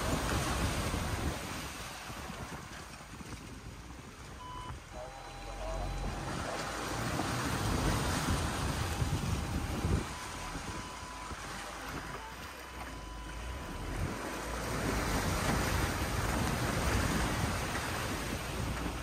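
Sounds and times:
wind on microphone: 0.0s - 4.9s, 5.6s - 19.0s
water splashing against car: 0.0s - 19.0s
low rumble: 4.1s - 19.0s.

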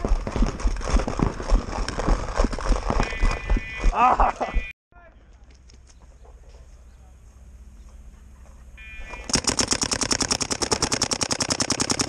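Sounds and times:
paintball marker rapid fire: 9.3s - 12.0s.

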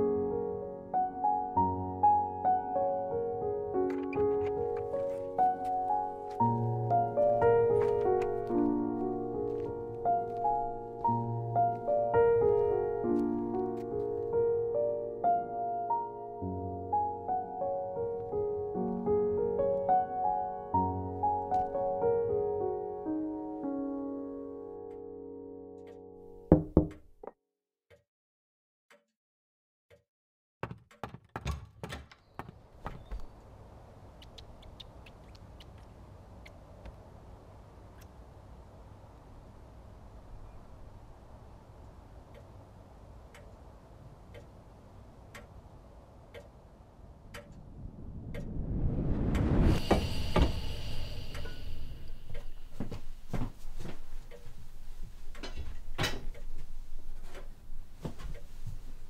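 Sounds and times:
knocks and thuds: 26.5s - 27.1s.

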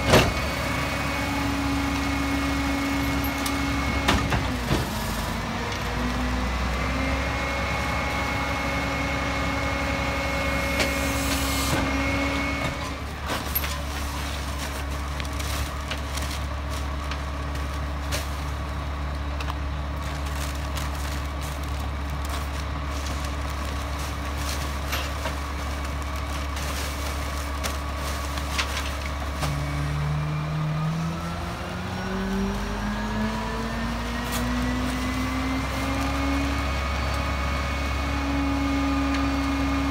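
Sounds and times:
diesel truck engine: 0.0s - 39.9s
bags thudding into hopper: 10.8s - 18.7s, 19.9s - 29.9s.

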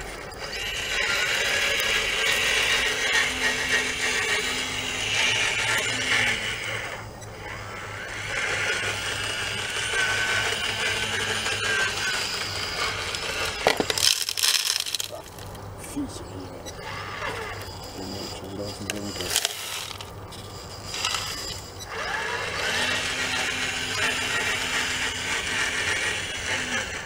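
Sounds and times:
small electric motors whining: 0.0s - 27.0s
stones rattling into truck bed: 13.6s - 15.5s.

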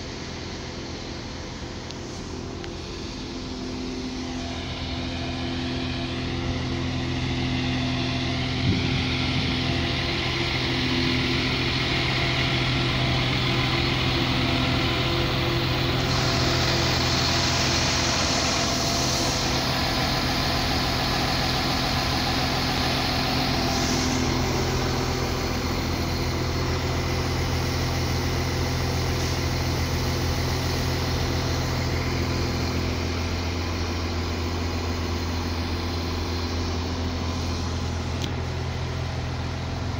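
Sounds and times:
train engine idling hum: 0.0s - 39.9s
hiss: 8.8s - 38.2s.

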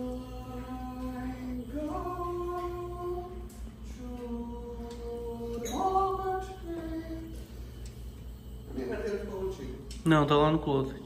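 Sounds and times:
person singing unaccompanied: 0.0s - 7.6s.

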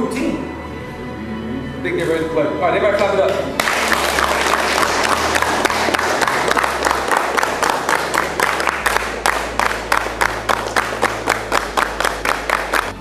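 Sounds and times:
people clapping: 3.0s - 13.0s.

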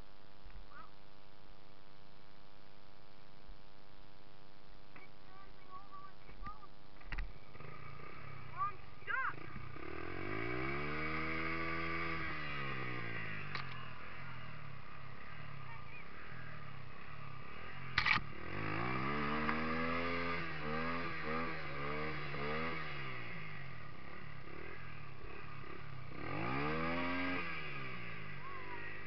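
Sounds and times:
dirt bike engine revving: 7.0s - 29.0s.

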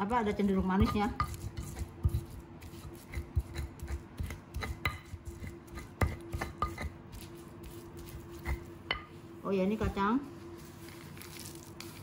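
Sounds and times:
faint steady hum: 0.0s - 12.0s
stone pestle pounding in mortar: 0.5s - 9.1s.

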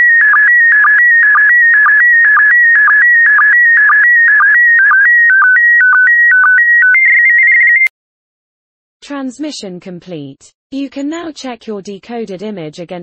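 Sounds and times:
warbling image signal tone: 0.0s - 7.9s.

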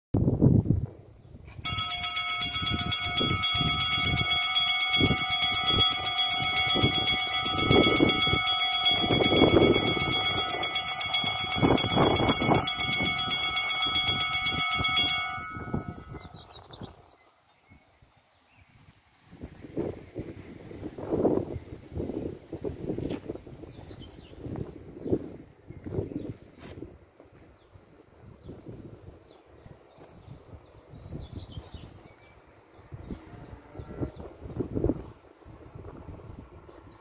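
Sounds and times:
level-crossing bells ringing: 1.6s - 16.6s.

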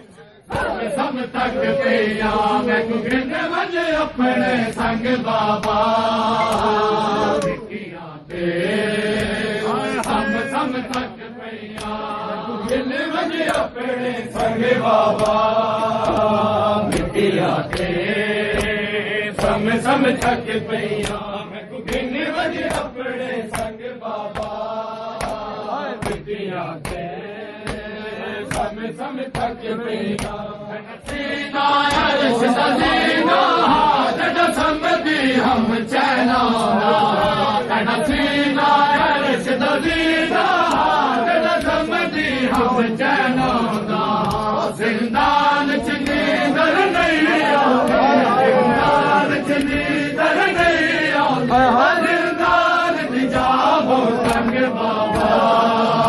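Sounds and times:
crowd of men chanting: 0.0s - 56.0s
hands slapping bare chests: 4.6s - 6.8s, 9.1s - 11.1s, 11.7s - 13.7s, 15.1s - 20.4s, 21.0s - 21.3s, 21.9s - 30.4s, 34.5s - 34.8s, 39.8s - 42.8s, 43.4s - 44.6s, 54.2s - 56.0s.

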